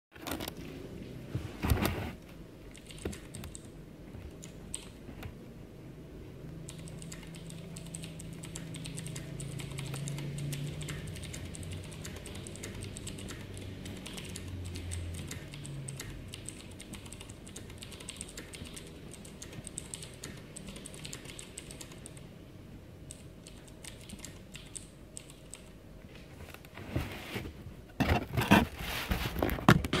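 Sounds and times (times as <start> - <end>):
mechanical keyboard typing: 2.7 - 3.7, 4.3 - 5.0, 6.6 - 22.3, 23.1 - 25.8.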